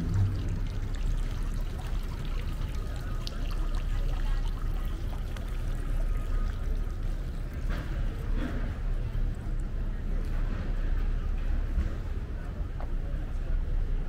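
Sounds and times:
running water rushing: 0:00.0 - 0:08.2.

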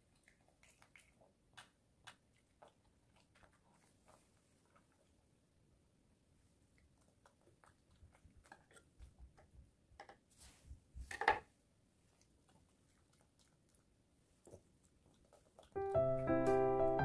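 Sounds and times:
dog chewing: 0:00.0 - 0:05.2, 0:06.7 - 0:09.6, 0:12.1 - 0:15.9.

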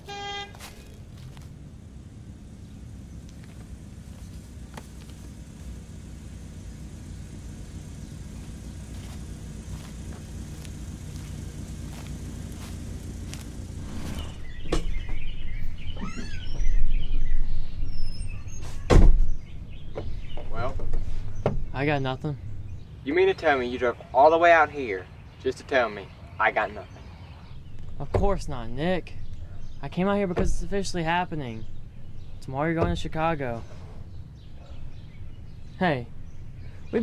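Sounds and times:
birds chirping: 0:00.0 - 0:37.0
engine low rumble: 0:00.0 - 0:37.0
loud thump: 0:18.8 - 0:19.4.

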